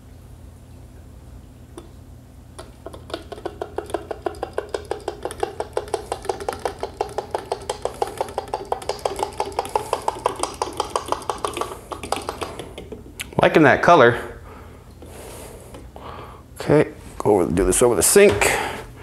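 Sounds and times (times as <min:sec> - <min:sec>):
hollow knocking with ringing tone: 0:02.6 - 0:13.2.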